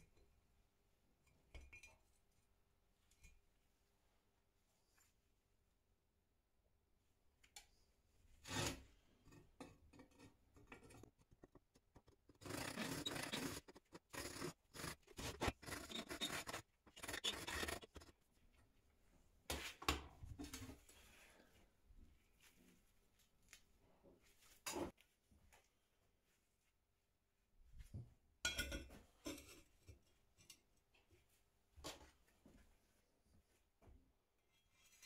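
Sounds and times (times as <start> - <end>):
hand tool rasping strokes: 10.8 - 18.2.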